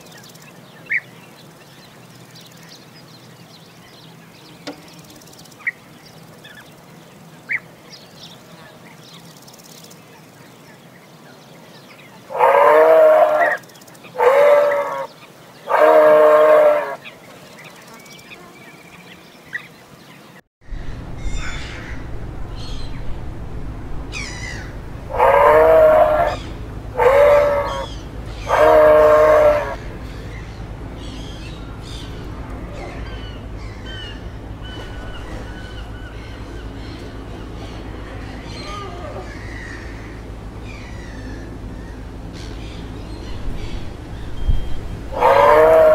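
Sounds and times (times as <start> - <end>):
moose calling: 12.3 - 17.1, 25.1 - 30.0, 45.1 - 45.9.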